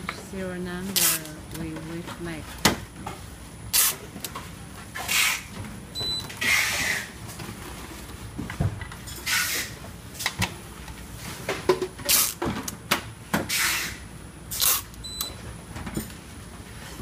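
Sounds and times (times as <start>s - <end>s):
barcode scanner beep: 6.0s - 6.3s, 15.0s - 15.4s.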